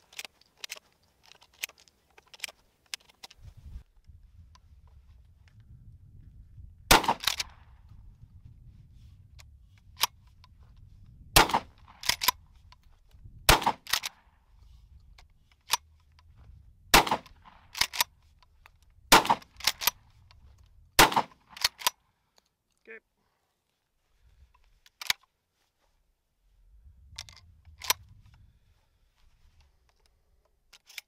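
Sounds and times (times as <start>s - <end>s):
shotgun pump racking clack: 0.1s - 3.4s, 7.0s - 7.6s, 11.4s - 12.4s, 13.5s - 14.2s, 17.0s - 18.1s, 18.8s - 20.4s, 21.0s - 22.0s, 27.2s - 28.1s, 30.7s - 31.0s
shotgun shots: 6.9s - 7.7s, 11.4s - 12.2s, 13.5s - 14.2s, 16.9s - 17.9s, 19.1s - 20.0s, 21.0s - 21.8s.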